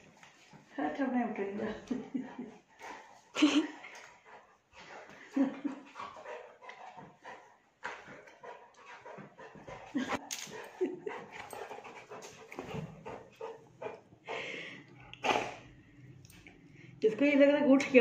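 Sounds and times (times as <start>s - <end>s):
puppy panting: 1.5s - 15.6s.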